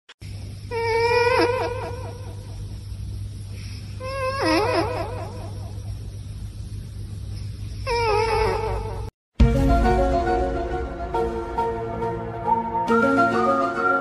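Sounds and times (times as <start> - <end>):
low steady hum: 0.2 - 9.1.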